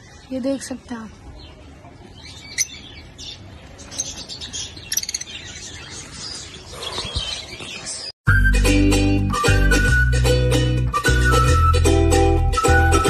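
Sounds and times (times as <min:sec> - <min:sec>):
parrots chirping: 0:02.2 - 0:07.6.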